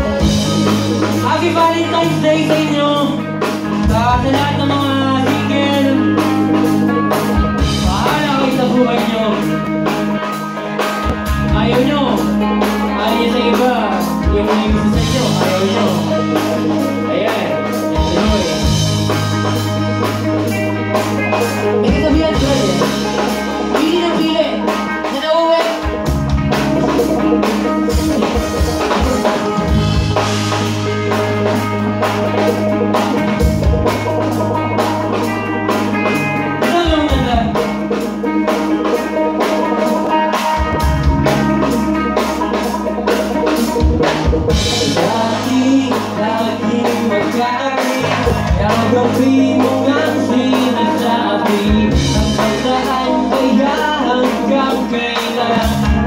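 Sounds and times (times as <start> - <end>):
man singing: 0.0 - 10.3, 11.2 - 19.4, 21.0 - 26.1, 36.1 - 37.9, 44.5 - 56.0
bass guitar: 0.0 - 56.0
drum kit beat: 0.0 - 56.0
electric guitars: 0.0 - 56.0.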